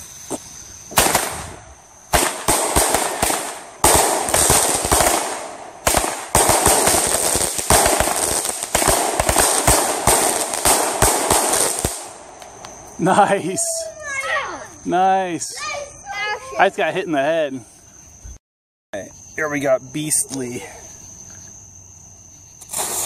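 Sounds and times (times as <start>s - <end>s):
fireworks bangs and crackling: 0.3s - 13.9s, 22.6s - 23.0s.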